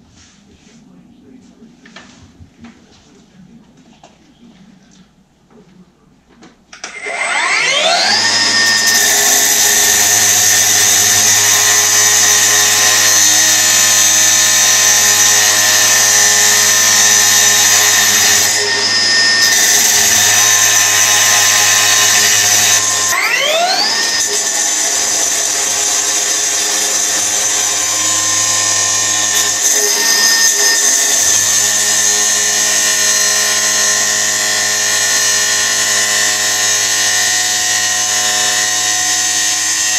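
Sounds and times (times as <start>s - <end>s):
cut-off saw whining: 6.8s - 39.9s
saw grinding through steel: 6.9s - 39.9s.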